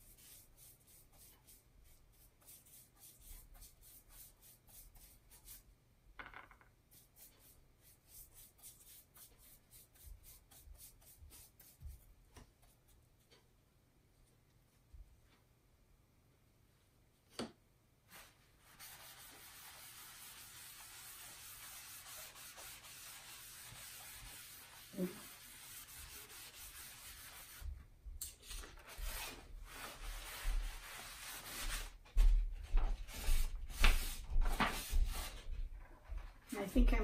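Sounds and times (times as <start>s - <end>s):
paper towel rubbing on sheet: 18.1s - 27.7s, 28.9s - 32.0s.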